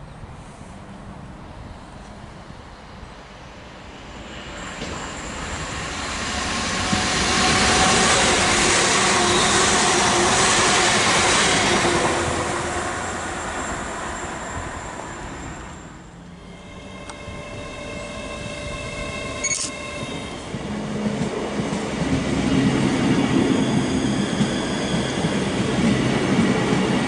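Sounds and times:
train wheels rushing on rail: 0:03.3 - 0:27.0.

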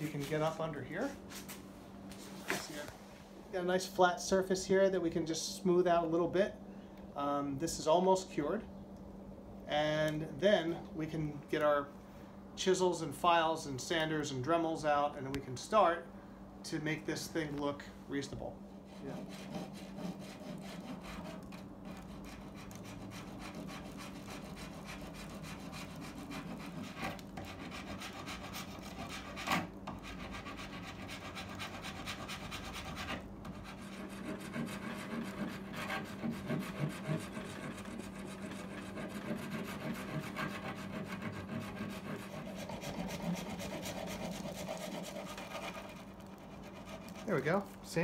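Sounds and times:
metal file rasping: 0:18.9 - 0:47.6.

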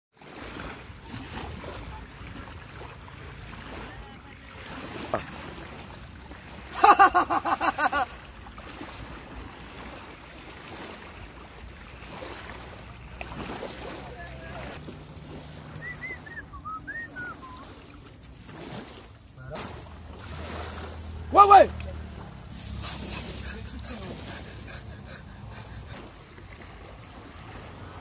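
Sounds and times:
wind: 0:00.1 - 0:28.0
water lapping: 0:00.2 - 0:28.0
fast laugh-like pulses: 0:22.8 - 0:26.1.

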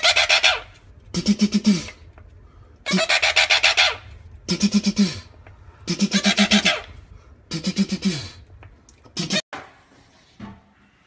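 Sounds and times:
parakeet chattering squawks: 0:00.0 - 0:00.7, 0:02.9 - 0:04.1, 0:06.0 - 0:07.0.

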